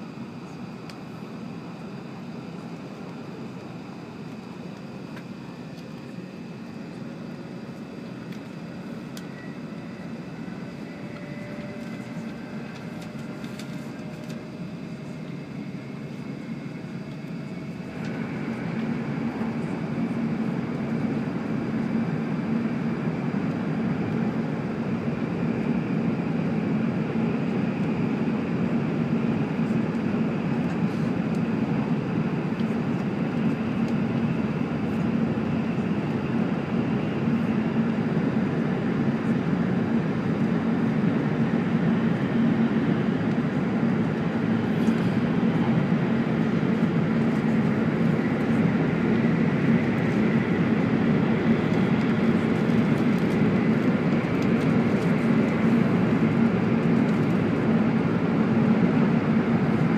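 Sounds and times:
train cabin noise: 10.9 - 21.0.

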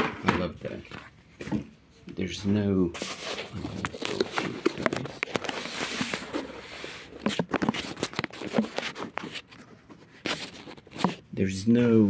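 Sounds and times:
plastic packaging crinkling: 3.0 - 11.3.

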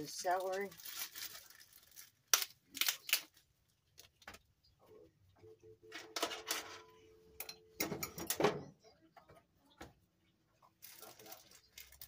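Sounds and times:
celery rustling and crackling: 0.0 - 4.3, 10.7 - 12.0
celery stalks snapping: 0.8 - 3.4.

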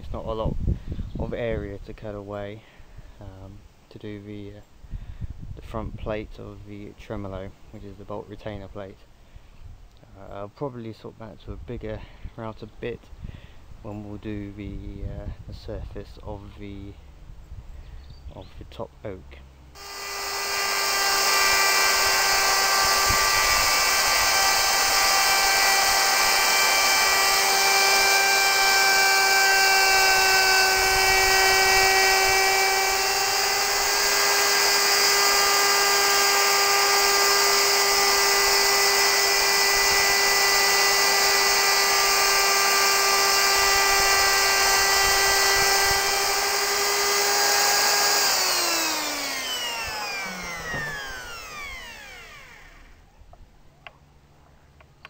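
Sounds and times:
router high whine: 19.8 - 53.1.

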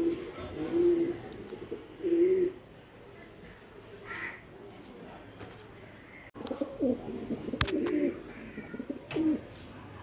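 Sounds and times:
pigeons cooing: 0.0 - 2.7, 6.1 - 9.5.

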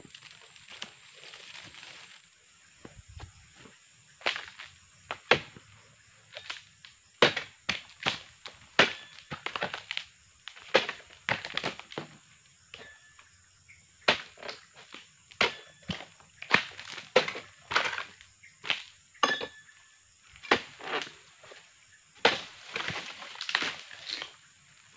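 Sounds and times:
chisel chopping palm fronds: 7.2 - 8.2, 8.8 - 9.8, 14.1 - 14.7, 15.4 - 18.1, 22.2 - 24.2.

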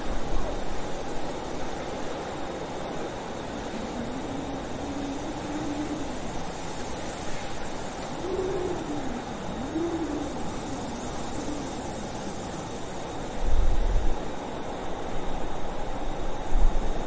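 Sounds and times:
howling blizzard wind: 0.0 - 17.0
low rumble of wind gust: 0.0 - 17.0.

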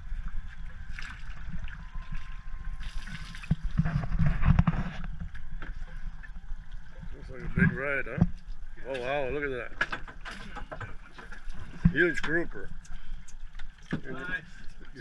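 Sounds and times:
wind and water rumble: 0.0 - 15.0
knocks and rustling: 9.8 - 12.4.

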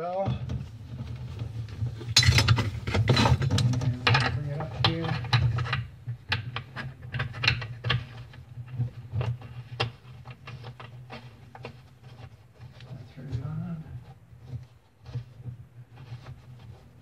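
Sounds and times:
metal hose clicks and rattles: 1.9 - 12.8.

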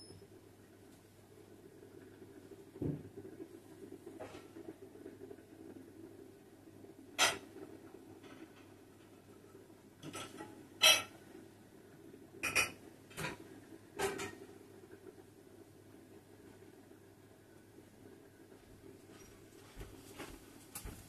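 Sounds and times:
faint steady hum: 0.0 - 21.0
kitchenware clinking and clattering: 7.2 - 7.5, 10.0 - 11.1, 12.4 - 13.4, 14.0 - 14.4.

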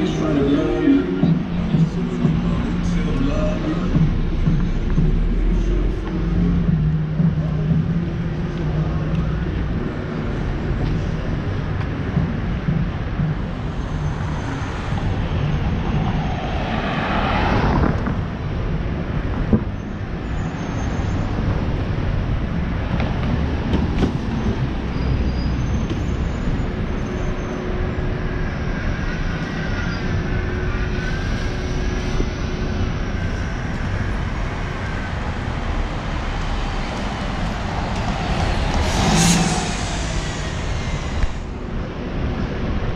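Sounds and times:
traffic rumble: 0.0 - 42.9
vehicle passing close: 14.0 - 18.9, 34.7 - 42.3.

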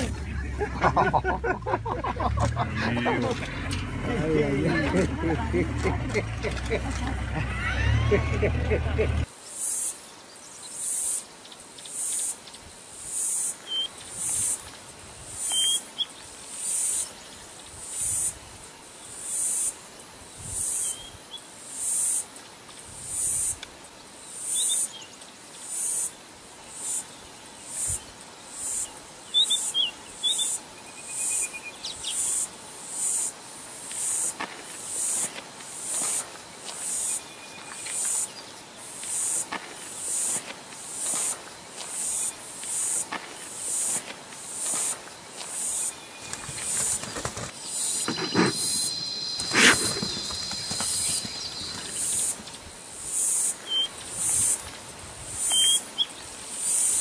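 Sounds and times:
insect calling in high pulses: 27.7 - 54.6, 55.4 - 57.0
bird chirps: 47.7 - 52.4, 53.6 - 54.0, 55.5 - 56.1.

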